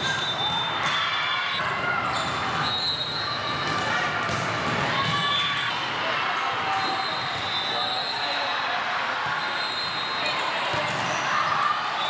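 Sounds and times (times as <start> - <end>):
volleyball hits: 3.5 - 5.7, 10.6 - 11.6.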